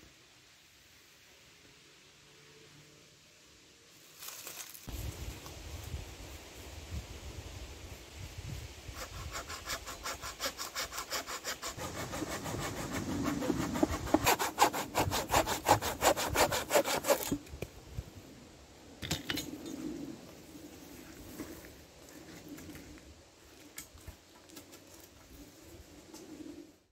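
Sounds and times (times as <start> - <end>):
rustle of handling: 4.0 - 6.7
hand saw cutting wood: 9.0 - 17.4.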